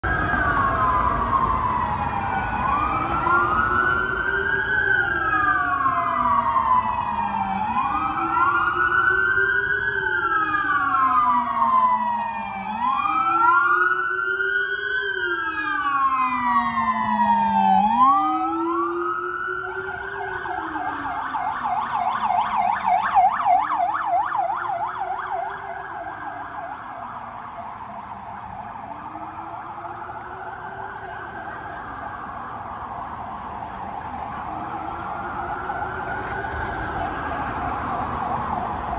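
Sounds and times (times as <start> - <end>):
deep low-frequency siren wail: 0.0 - 38.9
police sirens wailing: 0.0 - 38.9.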